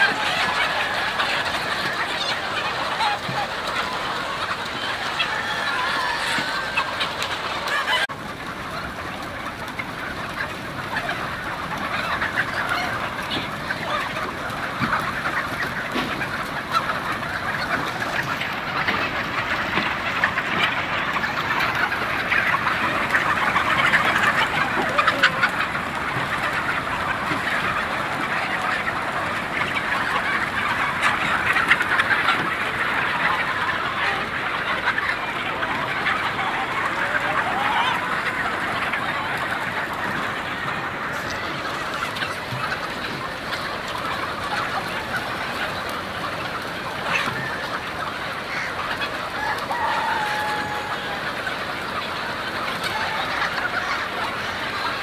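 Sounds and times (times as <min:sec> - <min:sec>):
chickens clucking and squawking: 0:00.0 - 0:55.0
rooster crowing: 0:49.4 - 0:51.2.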